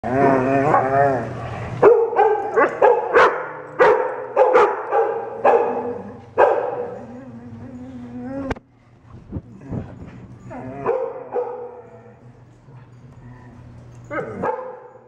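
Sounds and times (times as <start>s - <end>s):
dog barking high: 1.8s - 6.9s, 14.4s - 15.0s
dog whining: 5.8s - 8.6s.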